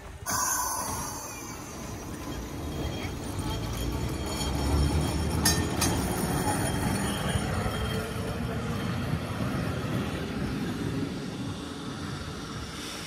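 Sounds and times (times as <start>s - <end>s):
tram rumbling on rails: 0.0s - 13.0s.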